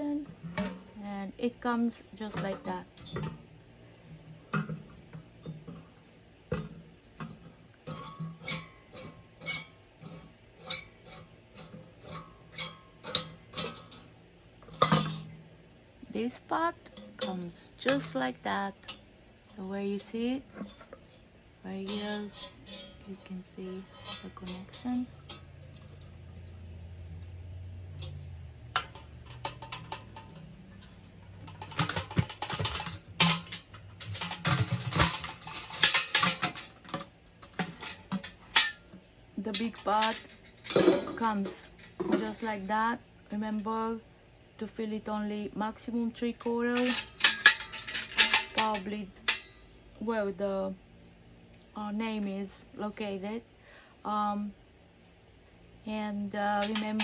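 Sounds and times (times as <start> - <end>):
metal pot and lid clinking: 2.2 - 3.4, 6.5 - 15.4, 16.8 - 19.0, 20.0 - 21.2, 21.8 - 26.1, 28.0 - 42.7, 46.4 - 49.7, 56.6 - 57.0.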